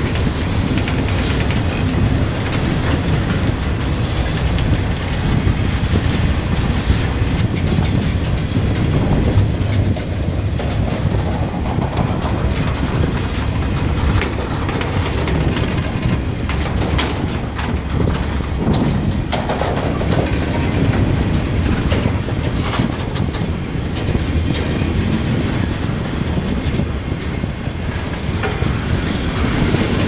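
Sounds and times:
clicks and clanks of couplers: 0.0 - 5.5, 7.3 - 25.8
train wheels rumbling on rail: 0.0 - 30.0.

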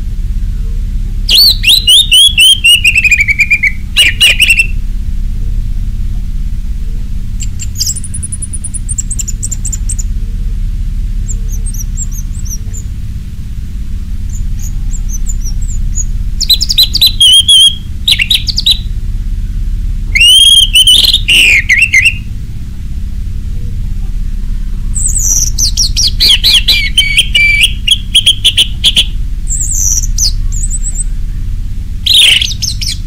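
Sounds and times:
steady low hum: 0.0 - 33.0
bird twittering: 1.3 - 4.8, 7.3 - 10.1, 11.2 - 13.0, 14.2 - 18.9, 20.1 - 22.3, 24.9 - 33.0
bird whistling sliding notes: 7.4 - 10.1, 11.3 - 12.9, 14.3 - 18.9, 20.2 - 22.2.

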